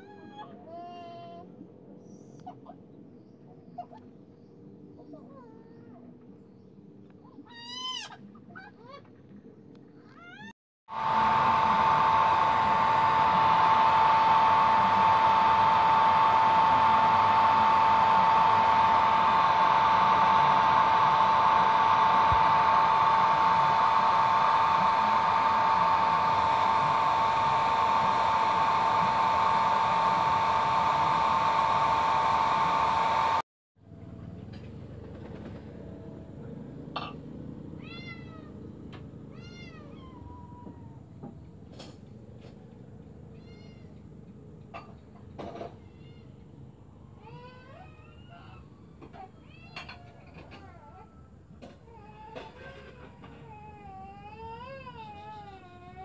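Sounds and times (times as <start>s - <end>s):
hair dryer whining: 10.9s - 33.5s.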